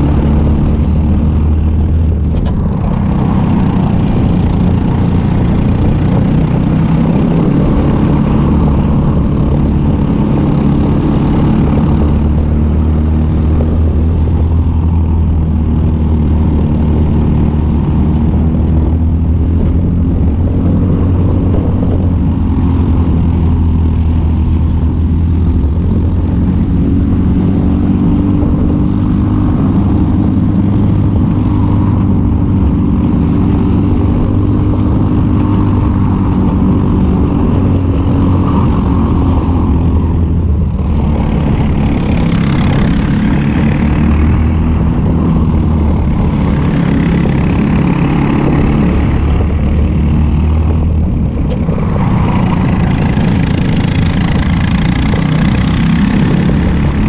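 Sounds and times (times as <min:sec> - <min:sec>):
kart engine running hard: 0:00.0 - 0:57.0
wind and road hiss: 0:00.0 - 0:57.0.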